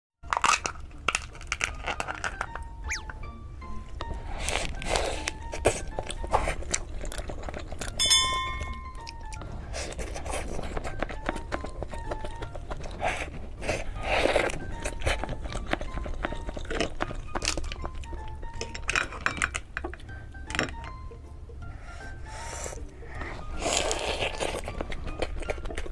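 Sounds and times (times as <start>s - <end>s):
crab shell crunching and cracking: 0.2s - 21.0s, 23.5s - 25.9s
light background music: 0.2s - 25.9s
chewing: 0.3s - 3.2s, 4.0s - 21.0s, 22.0s - 25.9s
light clinks against plate: 8.0s - 8.8s.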